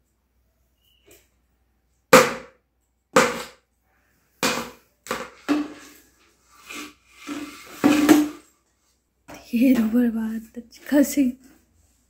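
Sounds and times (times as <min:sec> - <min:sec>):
plastic toy bat knocking on stone: 0:02.1 - 0:03.6, 0:04.4 - 0:05.8.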